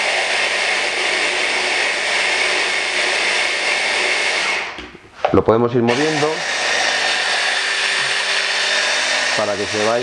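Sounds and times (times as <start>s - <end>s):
hand blender grinding nuts: 0.0s - 4.8s, 5.9s - 10.0s.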